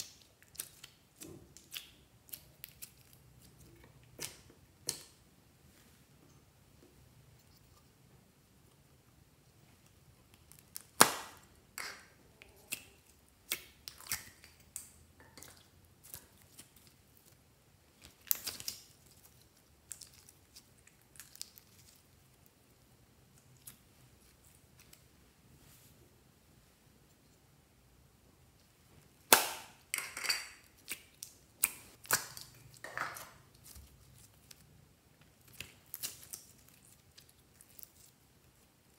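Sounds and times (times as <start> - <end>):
slime squelching: 0.0 - 5.2, 9.8 - 25.2, 30.6 - 38.9.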